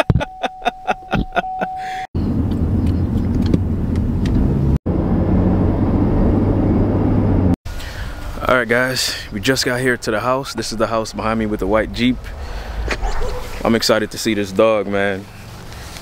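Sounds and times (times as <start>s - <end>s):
car engine and road rumble: 0.0s - 16.0s.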